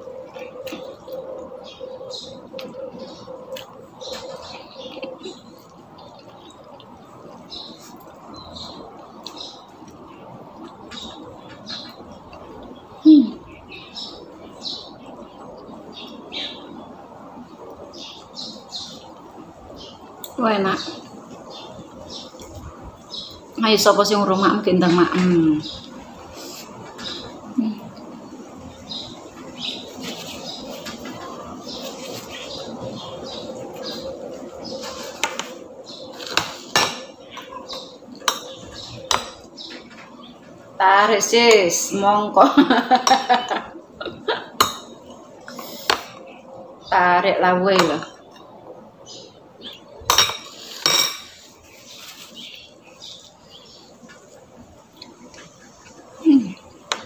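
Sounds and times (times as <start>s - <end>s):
person chewing: 3.5s - 8.2s
metal spoon clinking on dishes: 50.1s - 51.4s.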